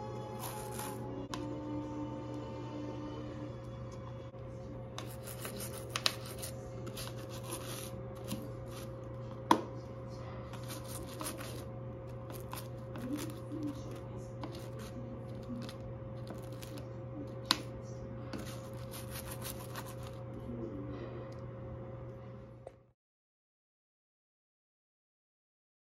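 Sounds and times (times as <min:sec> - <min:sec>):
steady low hum: 0:00.0 - 0:23.0
toothbrush scrubbing plastic: 0:00.2 - 0:01.0, 0:05.0 - 0:09.1, 0:10.5 - 0:17.7, 0:18.3 - 0:20.2.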